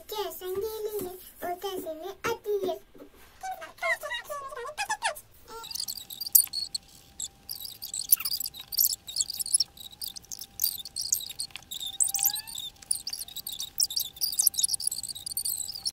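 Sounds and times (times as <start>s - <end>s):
faint steady tone: 5.5s - 15.9s.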